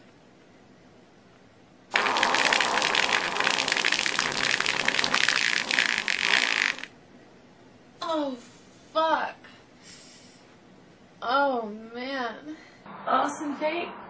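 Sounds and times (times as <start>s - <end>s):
long fluttering fart: 1.9s - 6.9s.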